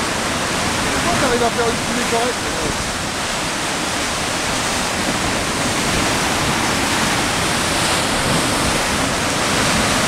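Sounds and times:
sea surf breaking on rocks: 0.0 - 10.0.

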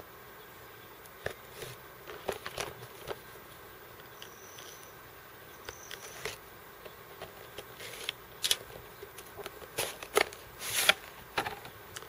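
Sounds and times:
cardboard scraping and rustling: 1.3 - 3.2, 7.2 - 8.7, 9.4 - 11.7.

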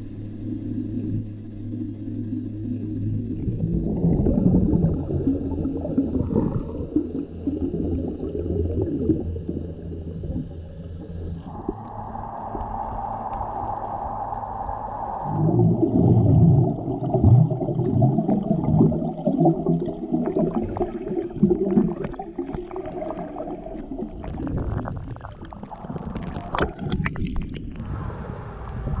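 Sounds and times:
muffled underwater rushing and bubbling: 0.0 - 29.0
steady hum: 0.0 - 29.0
clicks and crackles: 24.2 - 27.9.

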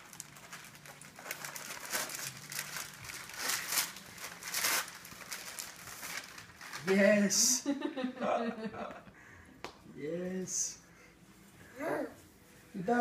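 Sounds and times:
wrapping paper rustling: 0.0 - 7.4.

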